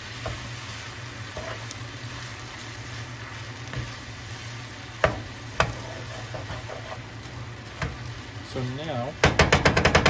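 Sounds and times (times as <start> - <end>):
food sizzling in a pan: 0.0 - 10.0
spatula scraping a pan: 1.2 - 1.8, 5.0 - 8.1.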